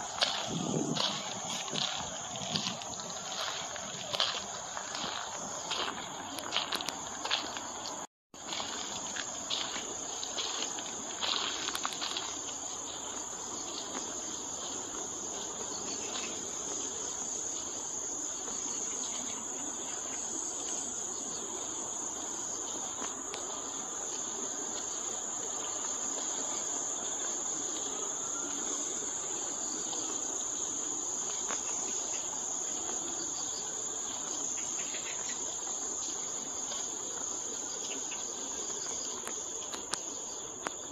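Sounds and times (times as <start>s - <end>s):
footsteps: 0.0s - 20.9s
insects trilling: 0.0s - 40.9s.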